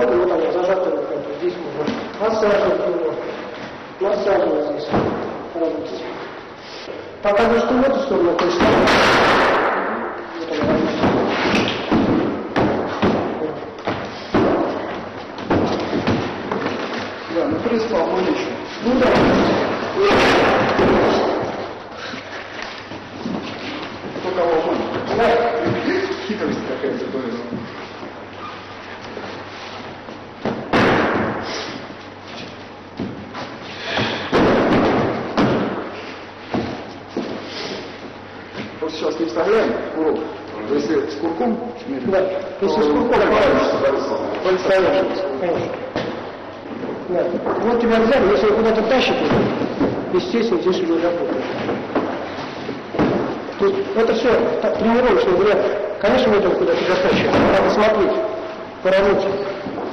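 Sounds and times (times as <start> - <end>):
bodies colliding: 4.8 - 5.5, 8.4 - 26.1, 29.2 - 38.8, 47.5 - 50.3, 50.9 - 54.4, 56.8 - 58.2
thuds on wooden floor: 10.6 - 16.9, 33.9 - 37.4, 51.6 - 53.4.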